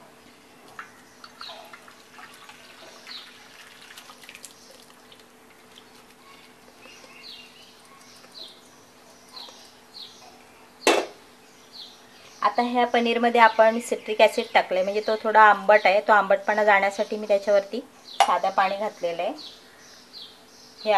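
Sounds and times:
liquid splashing and dripping: 0.7s - 8.7s
bird chirps: 0.9s - 1.8s, 6.2s - 17.3s.

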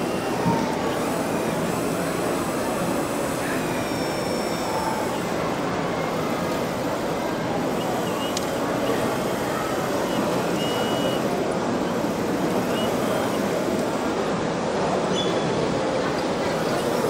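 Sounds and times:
crowd chatter in a hall: 0.0s - 17.0s
click: 8.3s - 8.5s.

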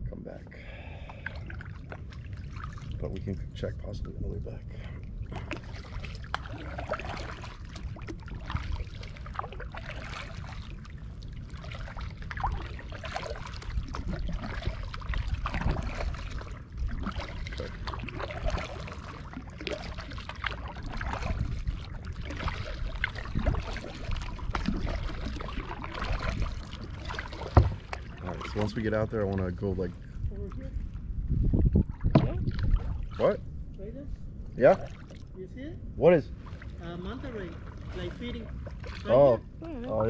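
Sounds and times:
steady low rumble: 0.0s - 40.0s
paddles splashing in water: 0.7s - 3.0s, 4.8s - 30.8s, 31.7s - 33.4s, 36.3s - 39.4s.

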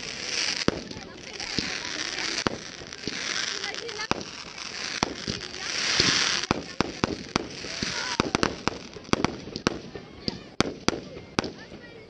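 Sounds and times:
rushing hiss: 0.0s - 9.4s
firework shells bursting: 0.0s - 11.8s.

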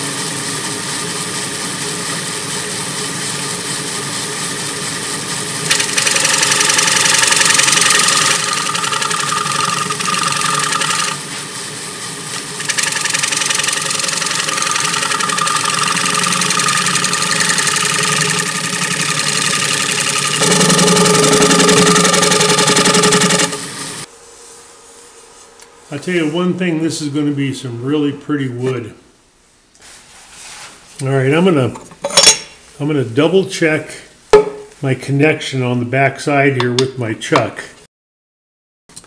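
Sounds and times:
wood lathe running: 5.6s - 11.2s, 12.3s - 24.1s
scraper cutting wood: 12.4s - 23.6s.

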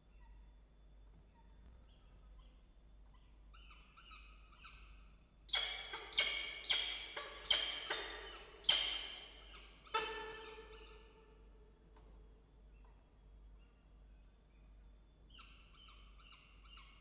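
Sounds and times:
falcons calling: 5.6s - 11.2s.

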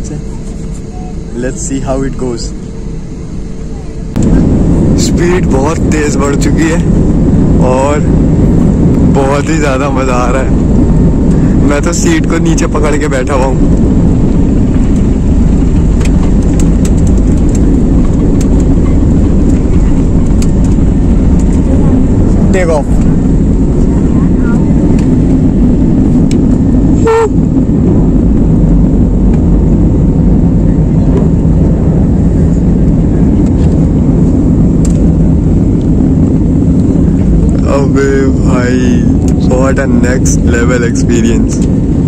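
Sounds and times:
jet engine roar: 0.0s - 42.0s
runway rumble: 0.0s - 42.0s.

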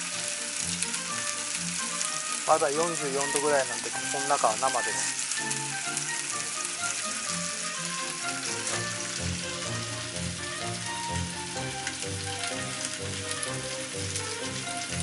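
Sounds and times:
background music: 0.0s - 15.0s
chicken sizzling in frying pan: 0.0s - 15.0s.

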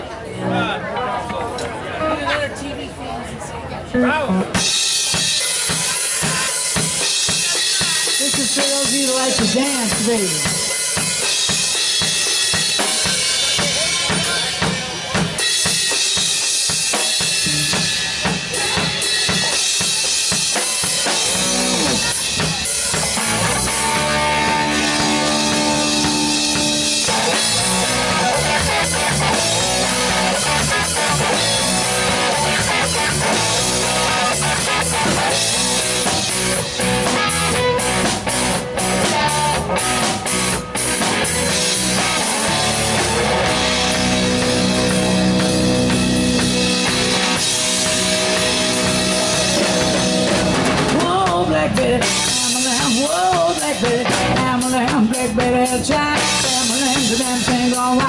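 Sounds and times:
electric bass: 3.9s - 5.3s, 17.2s - 19.0s, 20.8s - 58.0s
electric guitar: 3.9s - 58.0s
drumming: 4.0s - 58.0s
drum and cymbal hits: 4.3s - 58.0s.

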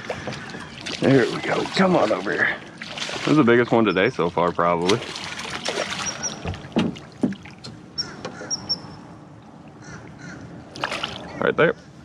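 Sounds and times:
fish thrashing and splashing: 0.0s - 3.7s, 4.8s - 7.9s, 10.7s - 11.3s
water sloshing: 0.0s - 11.4s.

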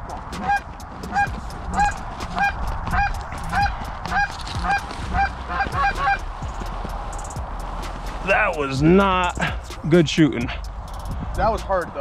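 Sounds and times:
goose honking: 0.4s - 6.3s.

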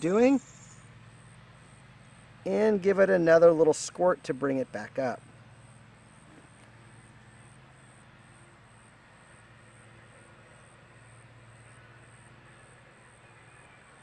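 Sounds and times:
distant lawn mower engine: 0.0s - 14.0s.

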